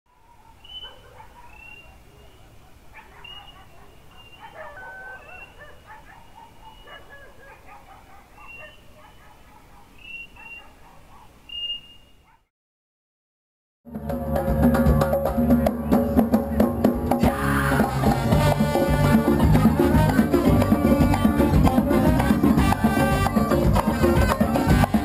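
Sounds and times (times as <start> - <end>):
distant dog barking: 0.1 - 12.5, 17.8 - 25.0.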